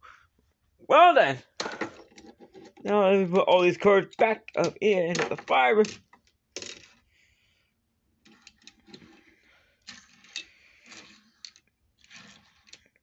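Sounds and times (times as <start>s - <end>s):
toy cars and cases clicking: 1.5s - 2.9s, 3.7s - 7.0s, 8.3s - 13.0s.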